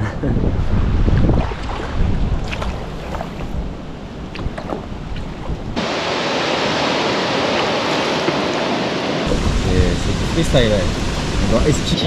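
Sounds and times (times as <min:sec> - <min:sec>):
wind buffeting microphone: 0:00.0 - 0:06.0, 0:07.0 - 0:12.0
river water rushing: 0:05.8 - 0:12.0.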